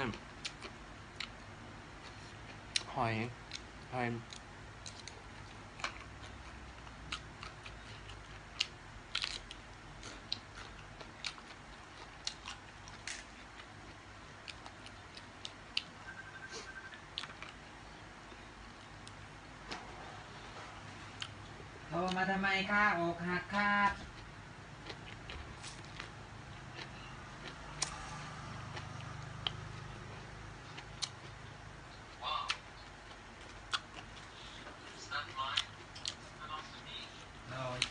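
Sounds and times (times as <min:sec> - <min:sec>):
faint low hum: 0:00.0 - 0:37.9
person chewing crunchy food: 0:04.3 - 0:16.2, 0:24.1 - 0:36.7.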